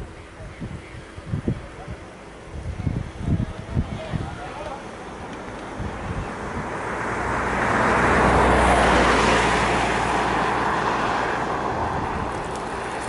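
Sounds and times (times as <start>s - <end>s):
vehicle passing by: 5.2s - 13.0s.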